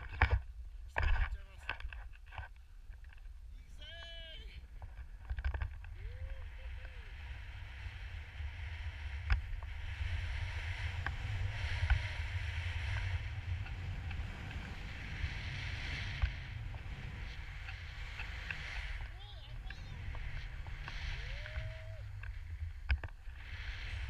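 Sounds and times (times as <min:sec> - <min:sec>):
wind buffeting microphone: 0:04.6 - 0:24.0
skis hissing through snow: 0:06.8 - 0:24.0.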